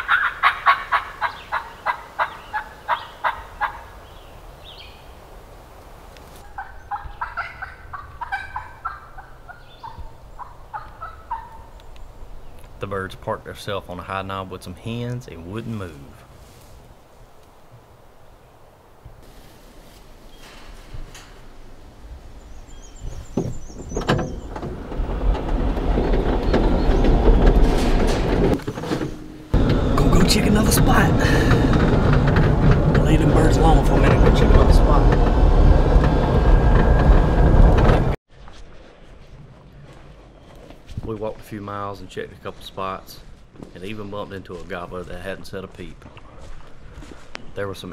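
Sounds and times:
wild turkeys calling: 0:00.0 - 0:05.1, 0:06.4 - 0:12.8
metal gate clanking: 0:20.4 - 0:22.1, 0:23.8 - 0:30.9
small bird chirping: 0:22.4 - 0:24.5
gate hinge squeaking: 0:23.3 - 0:30.0.

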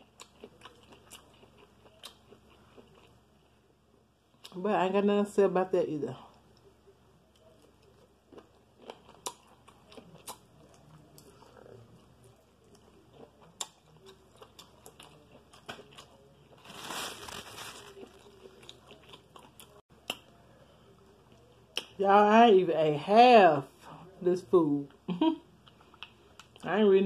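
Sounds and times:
person chewing: 0:00.0 - 0:03.6, 0:07.3 - 0:22.0, 0:25.6 - 0:26.6
rustling: 0:16.6 - 0:18.6.

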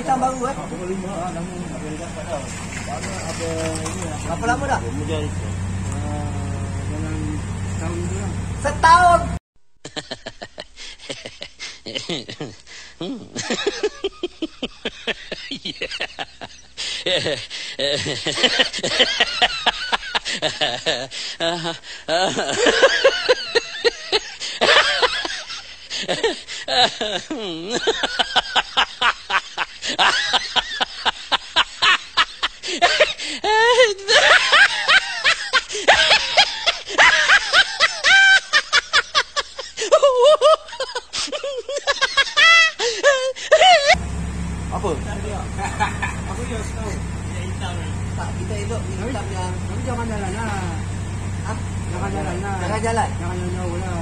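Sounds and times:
person laughing: 0:09.8 - 0:44.0, 0:45.4 - 0:46.8.

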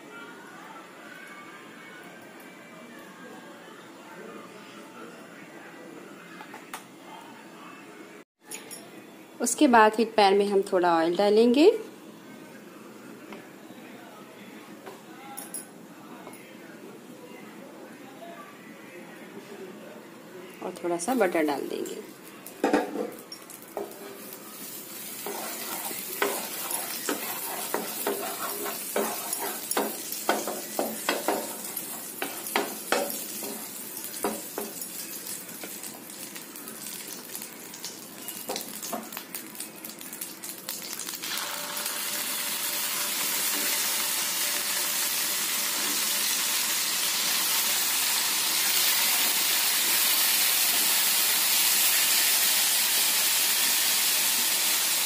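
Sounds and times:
butter sizzling in a pan: 0:23.6 - 0:55.0.

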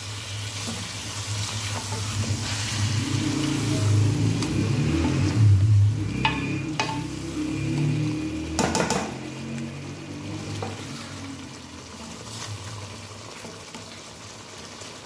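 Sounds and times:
stock sizzling in hot oil: 0:00.0 - 0:15.0
low rumble: 0:02.1 - 0:08.5
spatula knocking metal pan: 0:06.2 - 0:07.1, 0:08.6 - 0:09.2.

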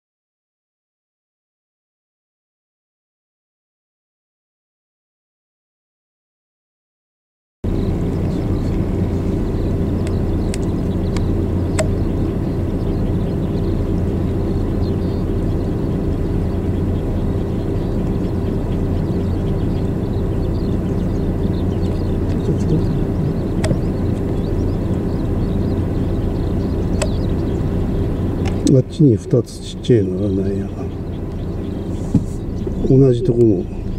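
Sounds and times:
low engine hum: 0:07.6 - 0:33.9.

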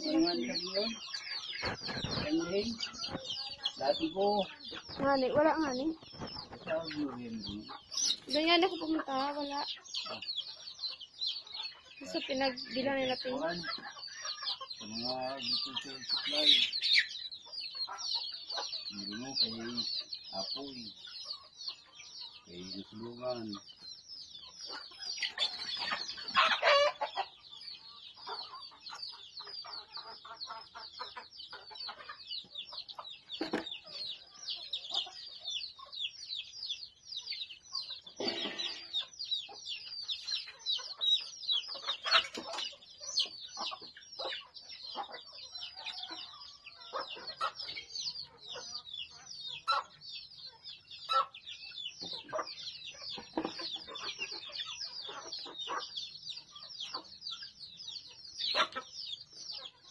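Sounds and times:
chickens clucking: 0:00.0 - 0:59.9
loud long chicken calls: 0:24.6 - 0:36.0, 0:37.5 - 0:42.9.

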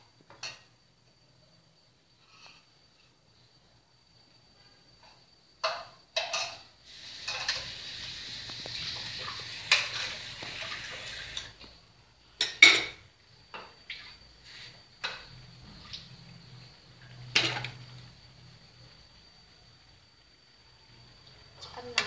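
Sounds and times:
food sizzling: 0:05.9 - 0:22.0.

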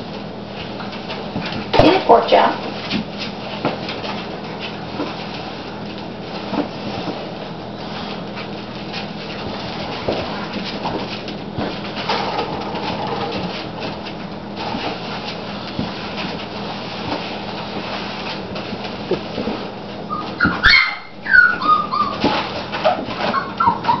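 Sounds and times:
broom brushing floor: 0:00.0 - 0:24.0
puppies scuffling on tile: 0:00.0 - 0:24.0
puppies yipping and whimpering: 0:20.1 - 0:24.0.

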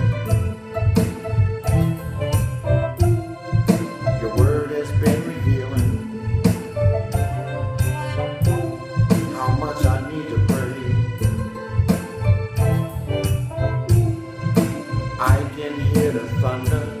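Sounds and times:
backing track with steady beat: 0:00.0 - 0:17.0
man singing a slow song: 0:04.2 - 0:06.1, 0:09.2 - 0:11.0, 0:15.2 - 0:17.0.

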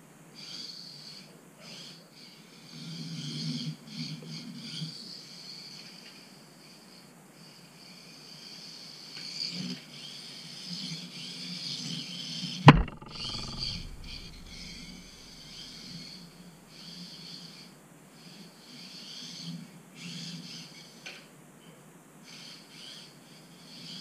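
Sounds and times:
sharp knock: 0:12.7 - 0:15.2.

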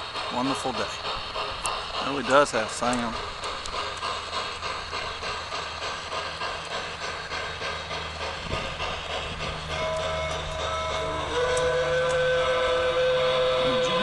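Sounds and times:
model train steam chuffing: 0:00.0 - 0:14.0
whistle-like tone: 0:09.8 - 0:14.0.

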